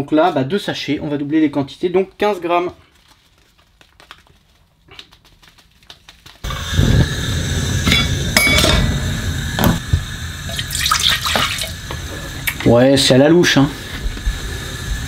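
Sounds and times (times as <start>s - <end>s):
steady rushing noise: 6.4s - 10.6s
short metallic rings: 7.9s - 9.1s.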